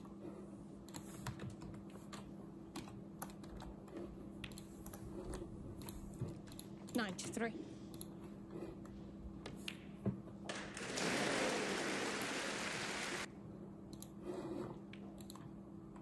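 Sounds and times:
audience applauding: 10.5 - 13.3.

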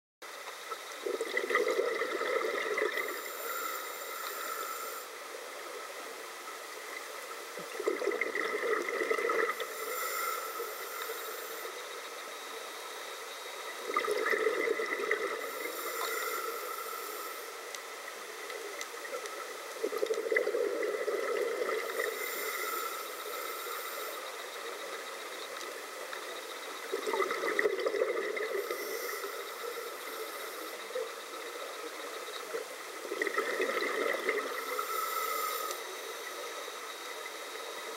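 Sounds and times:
exhaled bubbles gurgling underwater: 0.6 - 5.0, 6.9 - 12.2, 13.6 - 17.4, 18.5 - 37.8
regulator hissing: 3.0 - 5.1.

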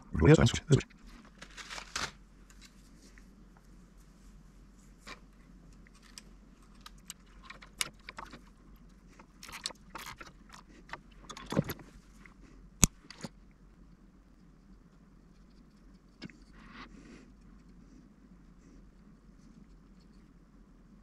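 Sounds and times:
fingers handling wires and plastic parts: 5.0 - 13.4.

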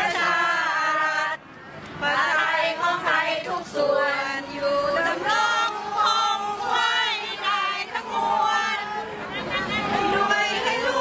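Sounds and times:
crowd singing in unison: 0.0 - 11.0.

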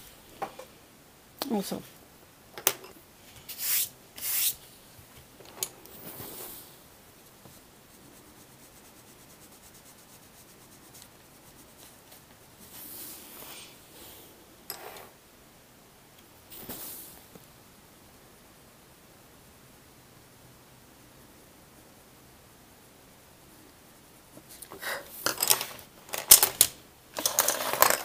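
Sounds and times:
hand swishing across paper: 3.4 - 4.6
pencil scratching on paper: 7.5 - 12.2.

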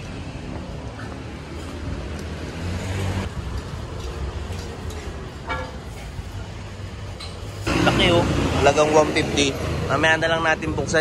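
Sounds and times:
road traffic: 0.0 - 11.0
vehicle engine rumbling: 0.0 - 11.0.

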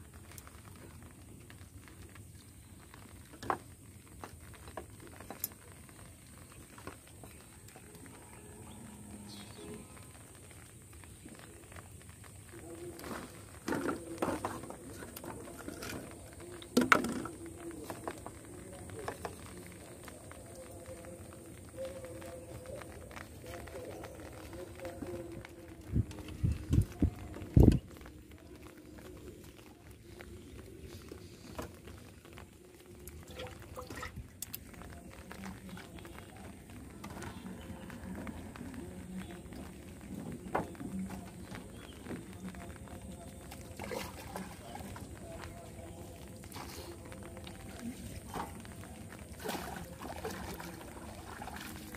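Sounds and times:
faint outdoor background: 0.0 - 51.9
plastic bottles clicking and crinkling: 0.0 - 51.9
plastic bottles set down: 12.9 - 18.4.

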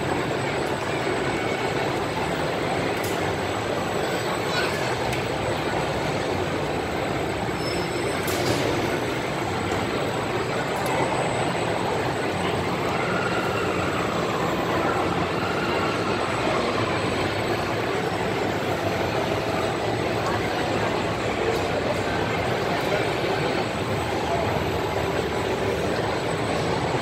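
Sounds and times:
amusement ride rumbling din: 0.0 - 27.0.

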